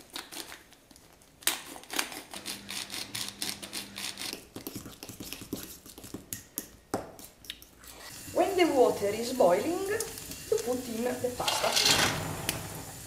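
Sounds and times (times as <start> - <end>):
pepper grinder crunching: 0.0 - 6.2
fork stirring in ceramic cup: 2.4 - 8.5.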